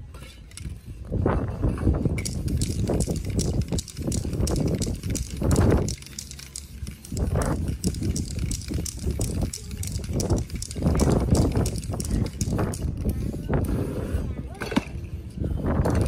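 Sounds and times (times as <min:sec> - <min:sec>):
aerosol spray can spraying: 0:02.2 - 0:12.8
spray can clicking and tapping: 0:02.2 - 0:12.9.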